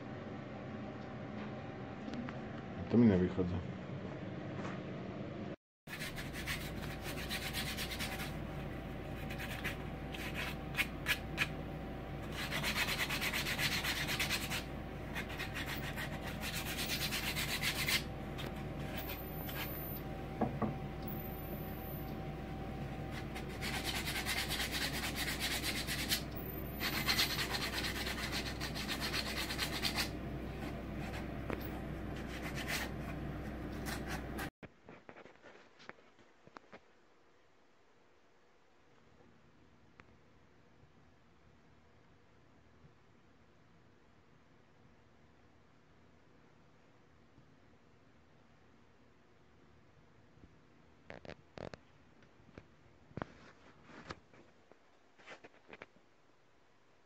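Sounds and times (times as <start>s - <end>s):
steady low hum: 0.0s - 34.5s
sandpaper rubbing on wood: 5.9s - 8.4s, 9.2s - 11.6s, 12.3s - 18.1s, 23.1s - 26.2s, 26.8s - 31.3s, 32.2s - 33.0s.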